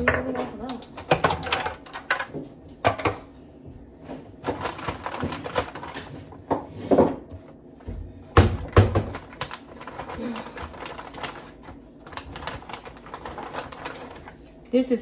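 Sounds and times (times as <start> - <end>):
plastic bowl and lid knocking: 8.3 - 9.2.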